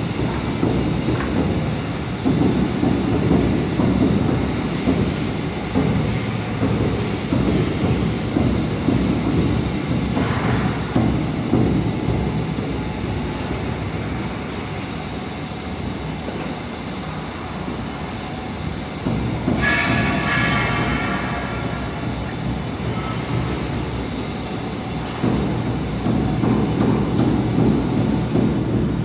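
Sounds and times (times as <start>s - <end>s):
construction site rumble: 0.0s - 29.0s.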